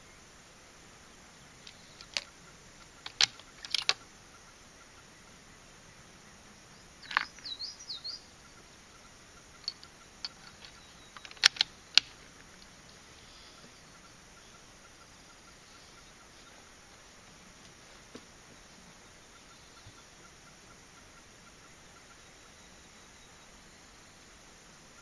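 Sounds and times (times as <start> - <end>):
bird chirping: 0.9 - 17.6, 18.5 - 25.0
rifle bolt clicks and clacks: 1.7 - 2.3, 3.0 - 4.0, 9.6 - 12.2.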